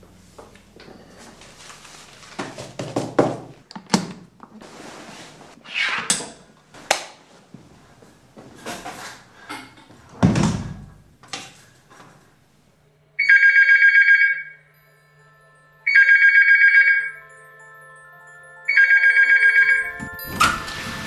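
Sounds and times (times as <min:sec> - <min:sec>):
telephone ringing: 0:13.2 - 0:21.0.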